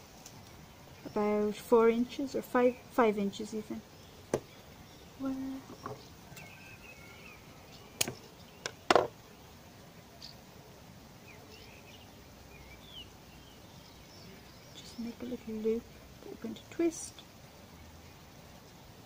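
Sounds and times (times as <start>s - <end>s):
faint bird chirps: 3.8s - 9.5s, 11.2s - 18.9s.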